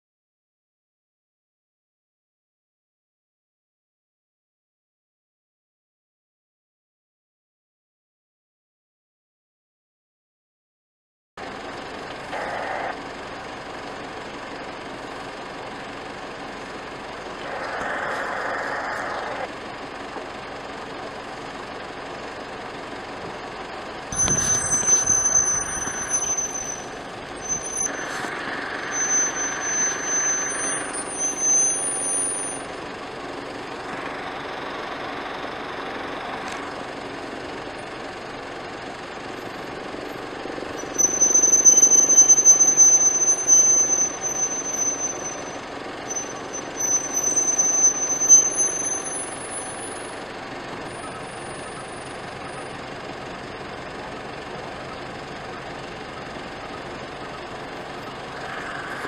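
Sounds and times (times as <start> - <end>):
road traffic: 11.4 - 59.0
thin high-pitched tones: 24.1 - 32.7.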